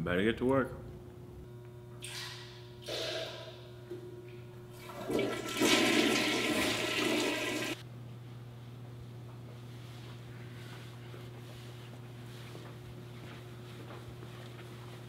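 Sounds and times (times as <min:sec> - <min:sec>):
toilet flushing: 0:04.7 - 0:07.8.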